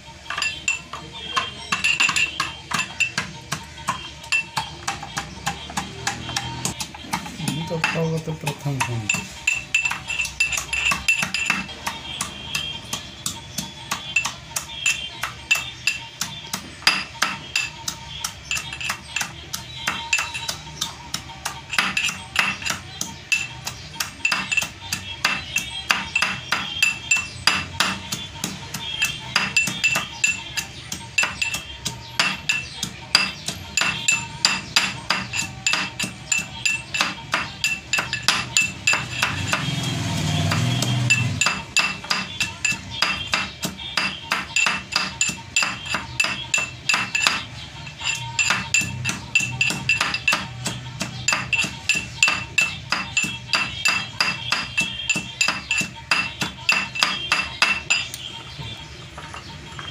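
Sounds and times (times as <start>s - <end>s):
pestle clinking in metal mortar: 0.1s - 58.3s.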